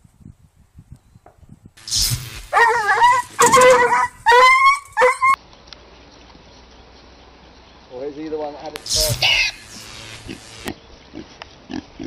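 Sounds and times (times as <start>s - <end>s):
electric fence shock burst: 1.8s - 3.9s, 8.8s - 10.8s
dog yelping: 2.5s - 5.4s.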